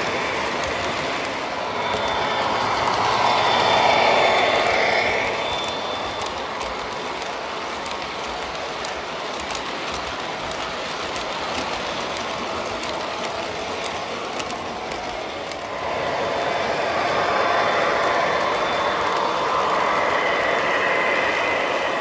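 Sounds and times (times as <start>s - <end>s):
model train cars rolling: 0.0s - 22.0s
faint clicks: 0.1s - 15.7s.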